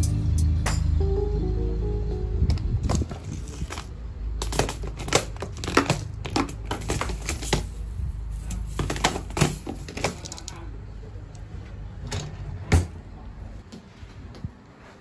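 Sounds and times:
plastic cases clacking and rattling: 3.1 - 7.8, 8.5 - 10.6.

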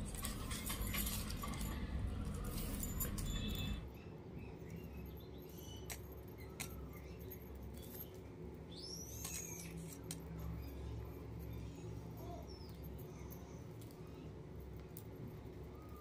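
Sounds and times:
low steady hum: 0.0 - 16.0
faint bird chirp: 3.1 - 14.4.

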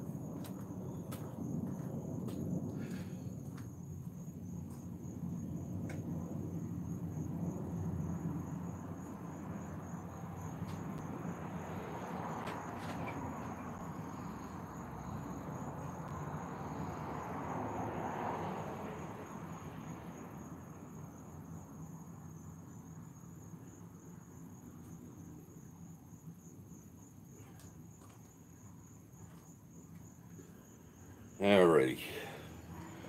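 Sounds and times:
crickets trilling: 0.0 - 33.0.

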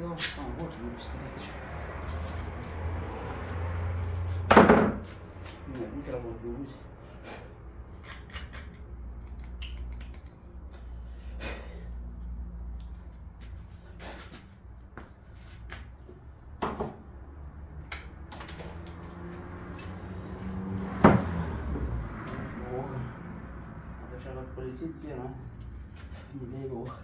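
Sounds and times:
knock on workbench: 4.5 - 5.0
tools clicking and clattering: 7.9 - 10.6, 12.1 - 13.3.

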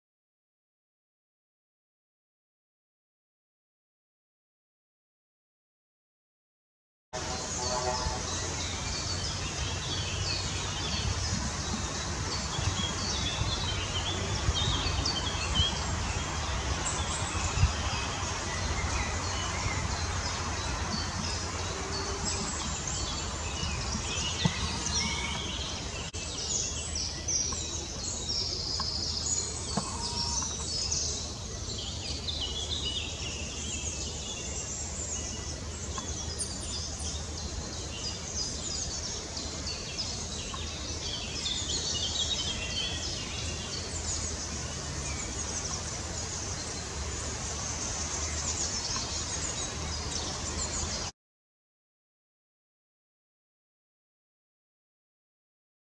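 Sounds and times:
birds singing and chirping: 7.2 - 51.1.

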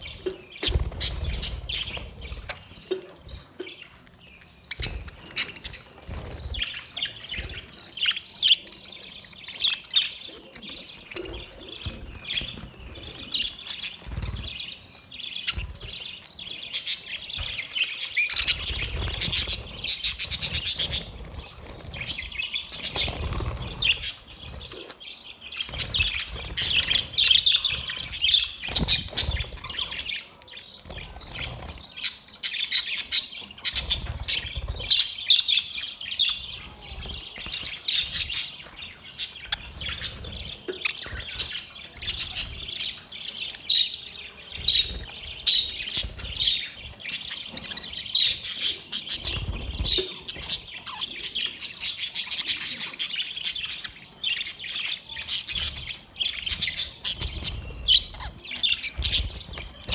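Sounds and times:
budgerigars chattering: 37.4 - 59.9.

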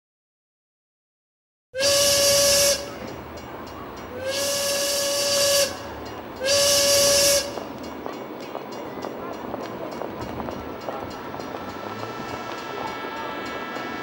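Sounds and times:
train whistle blasts: 1.8 - 3.2, 4.1 - 7.7.

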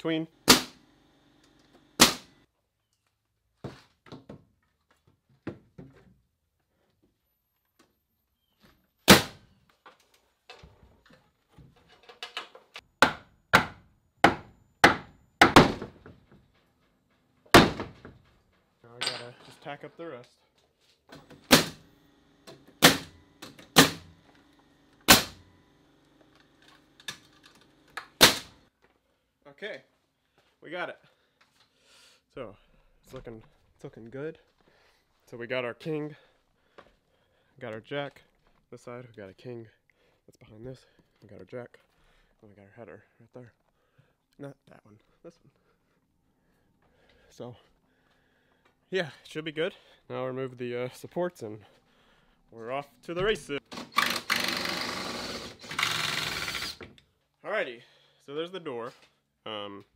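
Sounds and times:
nail gun shots: 0.4 - 0.8, 2.0 - 2.4, 9.0 - 9.5, 13.0 - 16.0, 17.5 - 18.0, 21.3 - 21.9, 22.8 - 24.1, 25.0 - 25.4, 28.0 - 28.6, 53.7 - 56.8
wooden knocks and thuds: 5.3 - 6.2, 13.0 - 16.4, 17.5 - 18.2
loud wooden bang: 13.0 - 16.1, 17.5 - 18.2.

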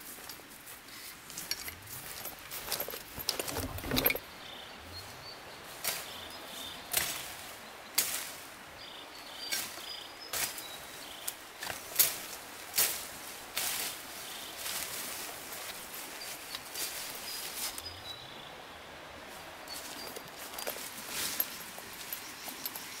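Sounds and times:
footsteps through undergrowth: 0.0 - 4.2, 9.4 - 18.1, 19.2 - 23.0.

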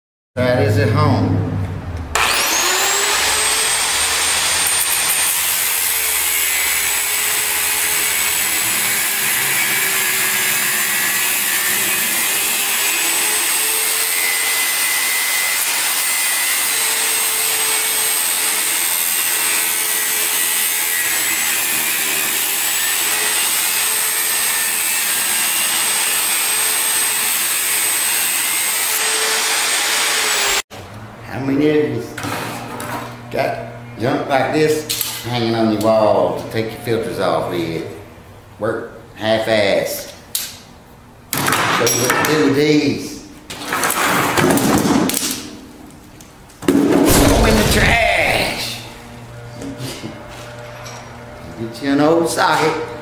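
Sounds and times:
angle grinder cutting steel: 2.2 - 30.6.

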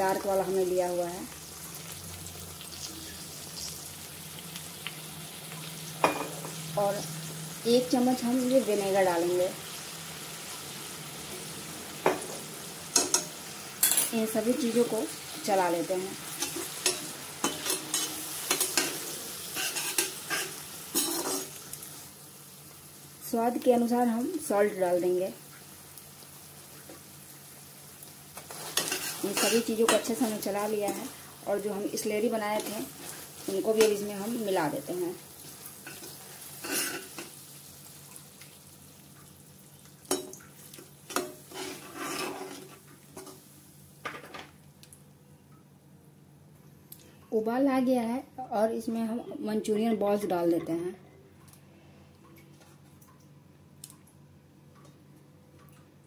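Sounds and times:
vegetables sizzling in pan: 0.0 - 44.4
steel spatula scraping pan: 16.4 - 21.5, 28.6 - 30.0, 35.9 - 37.2, 41.2 - 42.8.

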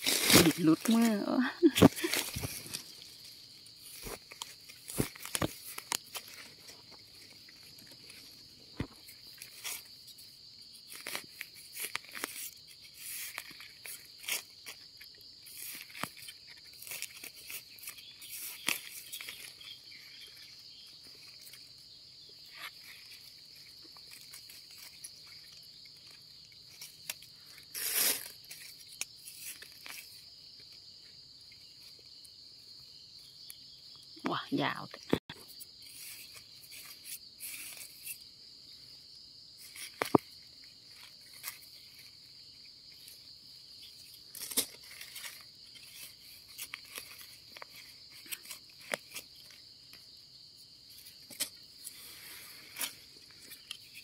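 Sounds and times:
high-pitched insect chorus: 0.0 - 54.0
rustling of dry leaves and twigs: 0.0 - 54.0.

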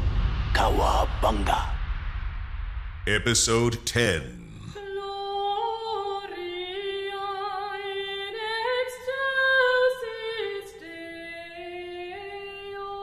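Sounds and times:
women singing a cappella: 4.8 - 13.0.

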